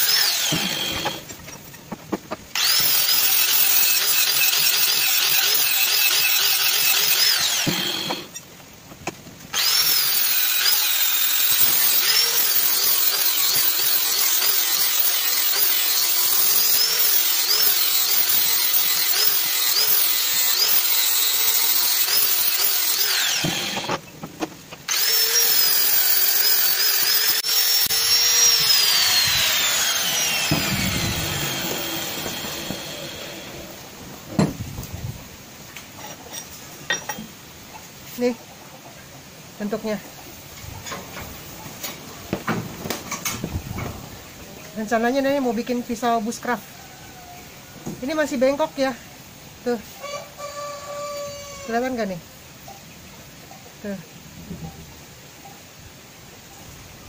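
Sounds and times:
angle grinder grinding steel: 0.0 - 1.9, 2.5 - 8.5, 9.5 - 24.2, 24.8 - 34.1.

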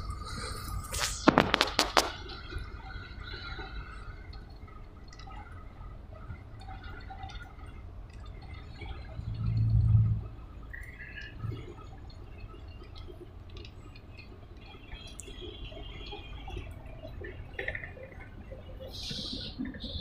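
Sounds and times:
truck cab road and engine rumble: 0.0 - 20.0
loud low hum: 9.1 - 10.6.

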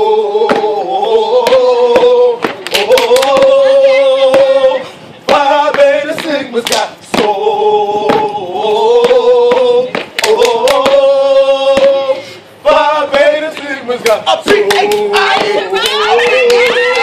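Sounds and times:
male voices chanting: 0.0 - 17.0
foot stomps: 0.4 - 0.8, 1.4 - 3.6, 5.3 - 8.4, 9.0 - 11.1, 11.7 - 12.1, 13.1 - 17.0
sharp hand claps: 2.4 - 3.5, 6.2 - 6.9, 9.0 - 11.0.

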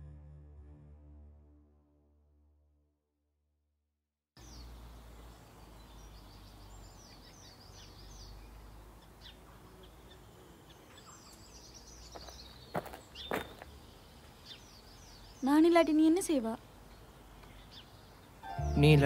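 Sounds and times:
small birds chirping: 4.4 - 19.0.

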